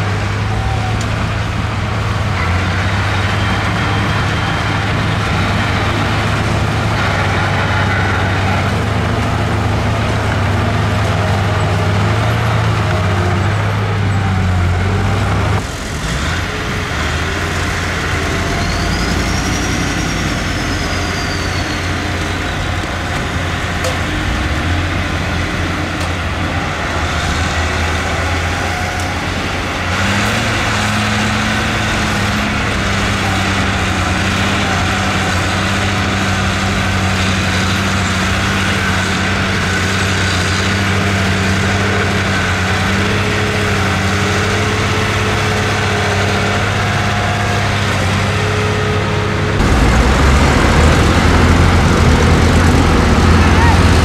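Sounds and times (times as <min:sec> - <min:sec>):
heavy diesel engines running: 0:00.0 - 0:54.0.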